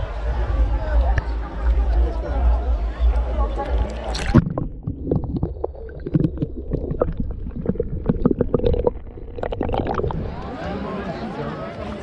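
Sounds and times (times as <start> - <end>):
underwater rumble of moving water: 0.1 - 11.0
small underwater clicks and pops: 3.5 - 10.5.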